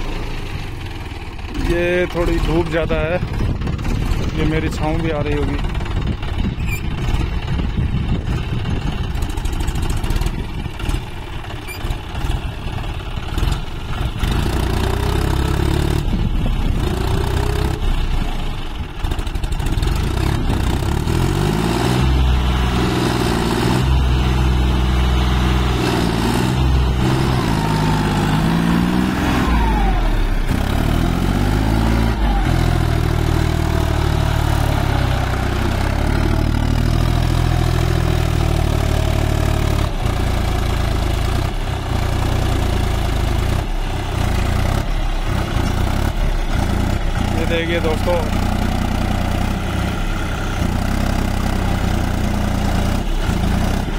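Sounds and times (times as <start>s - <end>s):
tractor diesel engine revving: 0.0s - 53.9s.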